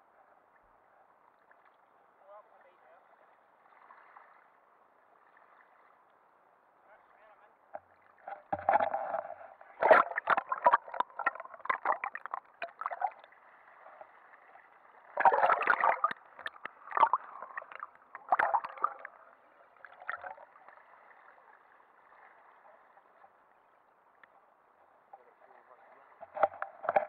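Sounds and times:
water splashing and gurgling: 7.8s - 23.2s, 25.4s - 27.0s.

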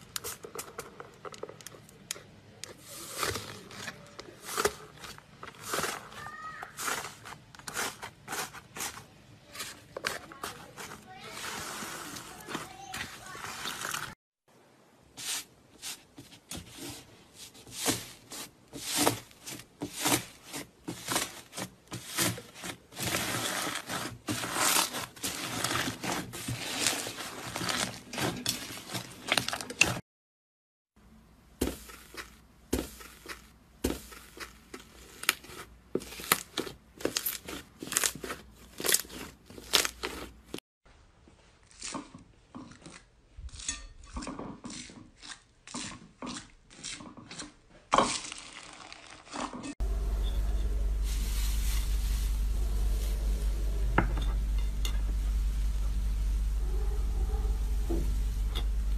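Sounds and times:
foam-bead slime crunching: 17.7s - 29.9s, 31.8s - 40.6s, 48.1s - 58.8s.

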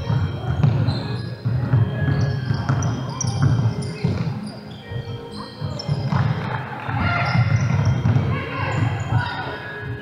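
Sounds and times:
sneakers squeaking on wooden floor: 0.0s - 10.0s
basketball dribbling on hardwood: 0.1s - 4.3s, 7.4s - 8.3s.

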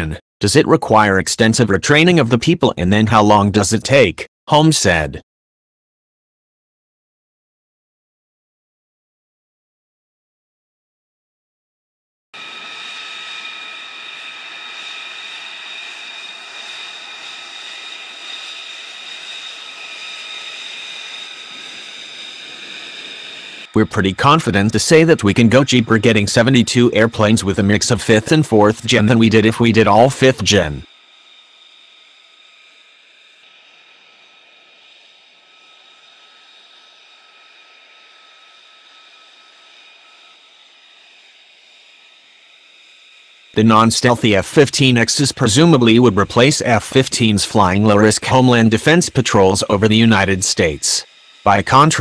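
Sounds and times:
jet engine whine: 12.4s - 52.0s.

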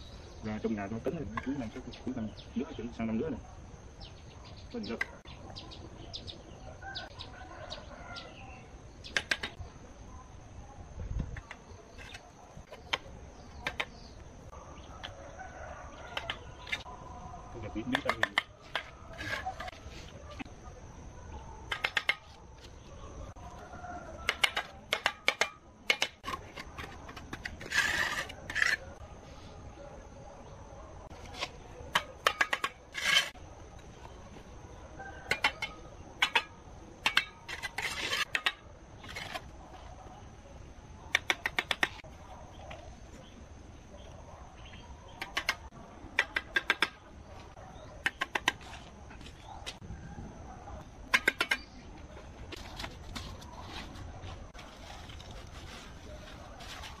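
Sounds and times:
trowel tapping and scraping bricks: 9.1s - 9.6s, 11.4s - 14.0s, 17.9s - 19.8s, 21.7s - 22.7s, 24.2s - 28.9s, 31.2s - 33.4s, 35.3s - 39.5s, 41.1s - 42.0s, 45.2s - 47.0s, 48.0s - 48.8s, 51.1s - 51.8s.

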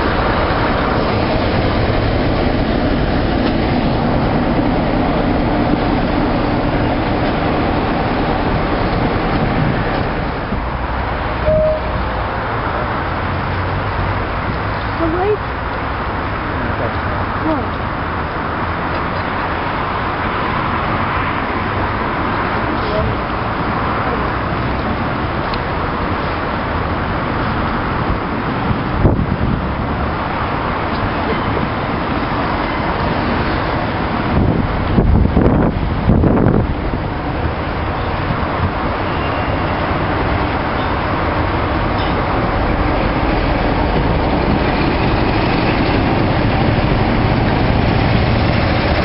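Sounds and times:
wind buffeting microphone: 0.0s - 11.4s, 15.6s - 49.0s
locomotive diesel engine rumble: 0.0s - 49.0s
short high note: 11.4s - 12.2s.

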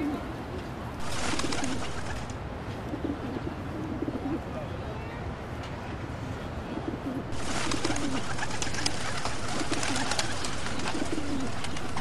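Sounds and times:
pigeons cooing: 0.0s - 0.4s, 1.0s - 2.3s, 2.9s - 4.5s, 6.8s - 12.0s.

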